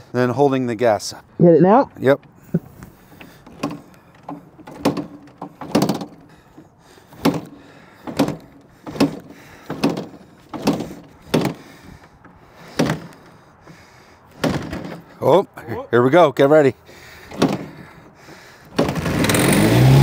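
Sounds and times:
motorcycle engine cranking knocks: 2.2 - 13.4, 14.4 - 15.1, 17.3 - 19.5.

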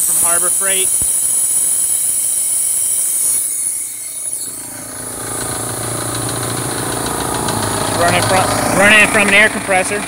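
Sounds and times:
compressed air hissing: 0.0 - 8.0
electric air compressor running: 0.0 - 10.0.

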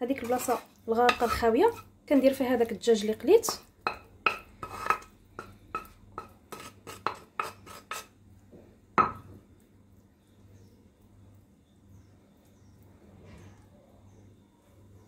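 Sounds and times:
wooden spoon knocking on pan: 3.4 - 8.1, 9.0 - 9.4.

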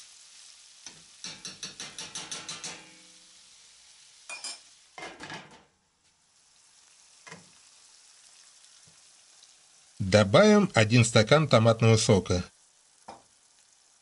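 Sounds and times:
food sizzling in a frying pan: 0.0 - 14.0
glass lid clinking on pan: 1.2 - 3.0, 4.3 - 5.5.

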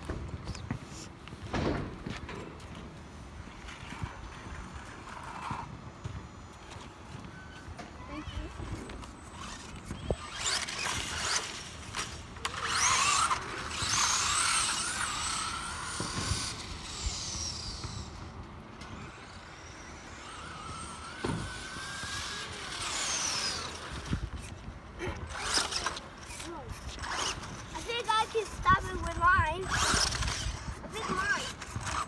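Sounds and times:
toy truck motor whining: 6.3 - 32.0.

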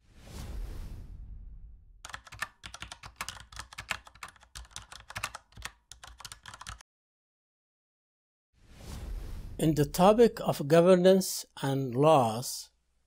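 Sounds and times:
keyboard typing clicks: 2.1 - 6.8.

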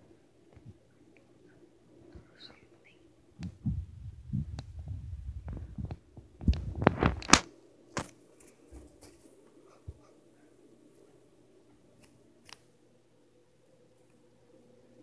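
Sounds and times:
dull low thumps: 3.4 - 6.8.

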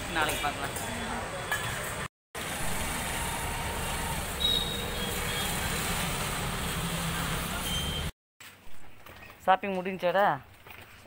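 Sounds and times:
street noise rumble: 0.0 - 8.1.

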